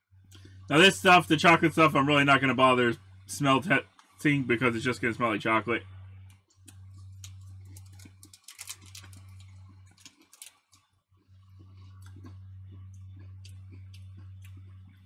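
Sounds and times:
low electrical hum: 0:00.0 - 0:15.0
crunchy biscuit chewing: 0:06.5 - 0:15.0.

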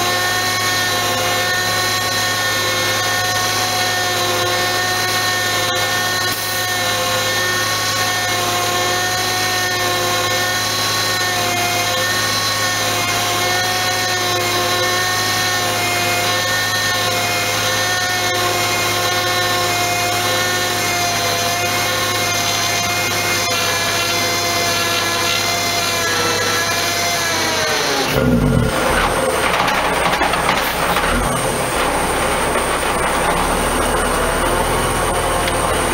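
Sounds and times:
winch whining under load: 0:00.0 - 0:35.9
truck engine humming: 0:27.7 - 0:35.9.

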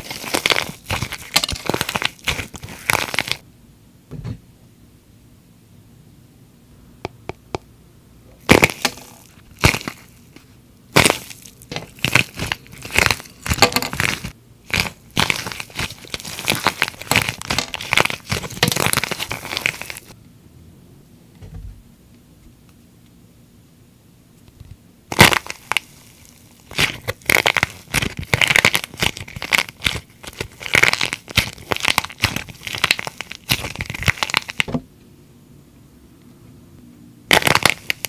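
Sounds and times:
crackling crunches: 0:00.0 - 0:03.4, 0:08.4 - 0:20.2, 0:25.1 - 0:34.7, 0:37.3 - 0:38.0
plaster shell cracking: 0:00.0 - 0:03.4, 0:08.4 - 0:10.2, 0:10.9 - 0:20.1, 0:26.6 - 0:34.8, 0:37.3 - 0:38.0.

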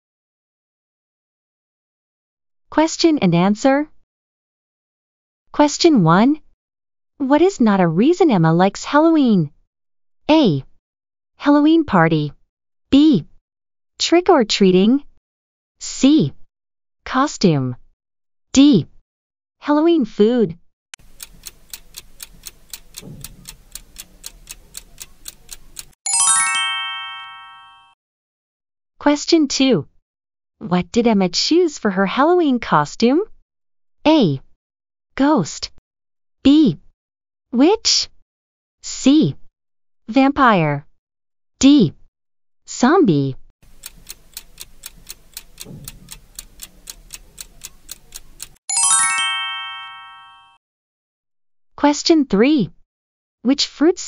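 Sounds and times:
clock ticking: 0:21.0 - 0:26.0, 0:43.6 - 0:48.6
bell-like chime: 0:26.0 - 0:28.0, 0:48.7 - 0:50.6.

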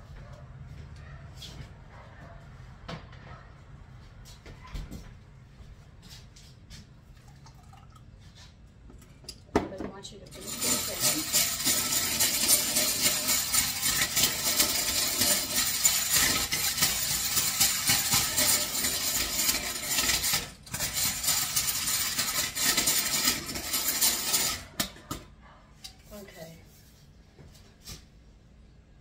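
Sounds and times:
beaters clattering in ceramic bowl: 0:09.3 - 0:25.3
egg beater whirring: 0:10.3 - 0:24.9.

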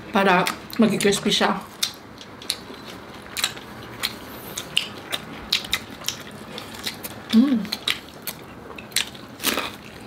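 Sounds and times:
crunching and chewing food: 0:00.2 - 0:10.0
person humming: 0:07.3 - 0:07.7.

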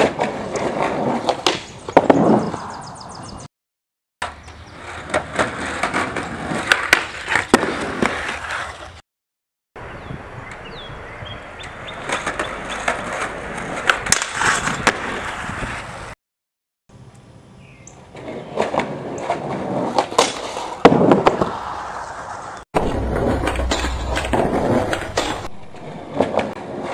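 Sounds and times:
skateboard wheels rolling: 0:00.0 - 0:02.7, 0:04.2 - 0:09.0, 0:11.4 - 0:16.2, 0:18.0 - 0:26.9.

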